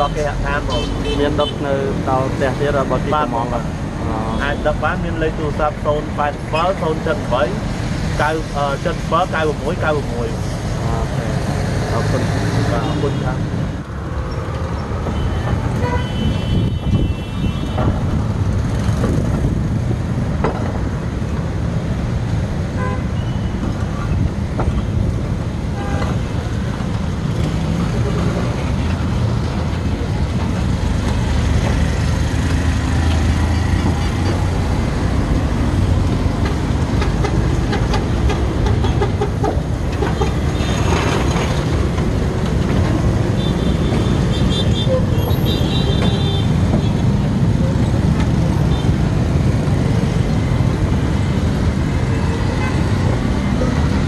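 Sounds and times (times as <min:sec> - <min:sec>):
street traffic rumble: 0:00.0 - 0:54.0
vehicle horn tooting: 0:15.1 - 0:17.9, 0:43.4 - 0:46.5.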